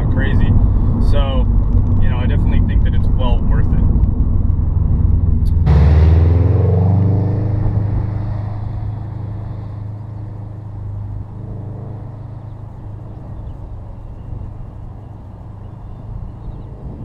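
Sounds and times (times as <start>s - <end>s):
low in-cabin rumble: 0.0s - 17.0s
car passing by: 5.5s - 12.6s.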